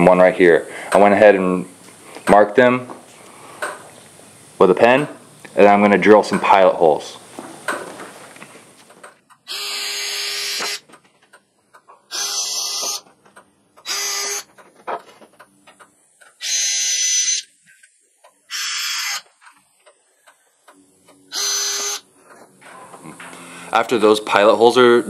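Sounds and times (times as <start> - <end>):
cordless drill boring into wood: 9.5 - 10.8, 12.1 - 13.0, 13.8 - 14.5, 16.4 - 17.4, 18.5 - 19.2, 21.3 - 22.0.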